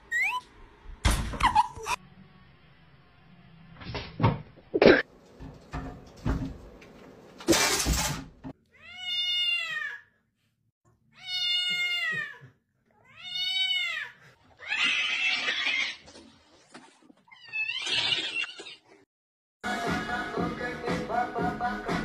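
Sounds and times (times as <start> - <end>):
cat meowing: 8.7 - 10.0, 11.2 - 16.0.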